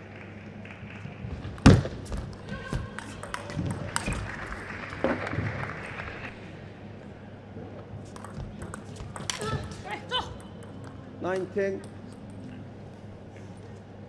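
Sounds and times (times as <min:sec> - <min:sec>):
ball bouncing away: 0:01.5 - 0:05.6, 0:08.1 - 0:12.5.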